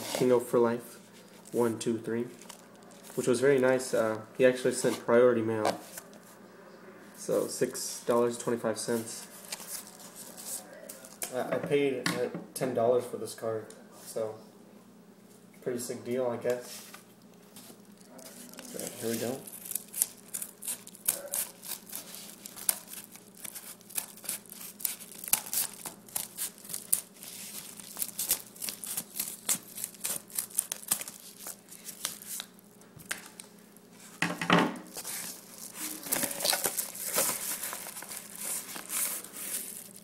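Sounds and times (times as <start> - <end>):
paper crackling and crinkling: 1.1 - 4.2, 9.3 - 11.3, 16.7 - 34.2, 34.9 - 40.0
envelope rustling: 9.3 - 11.2, 17.8 - 33.4, 34.9 - 40.0
scissors snipping paper: 18.5 - 32.4.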